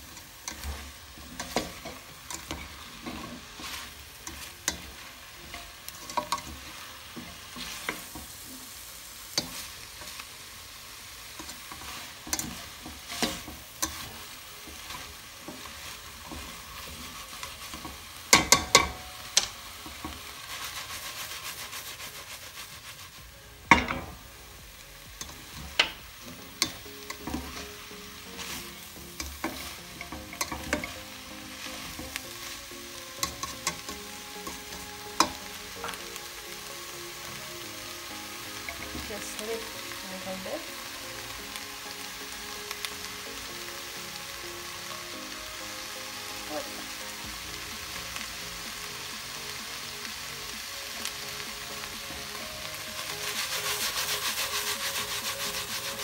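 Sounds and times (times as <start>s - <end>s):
vegetables sizzling in a pan: 0.0s - 56.0s
spatula clacking against a pan: 17.4s - 20.2s, 29.1s - 31.0s, 33.2s - 36.0s.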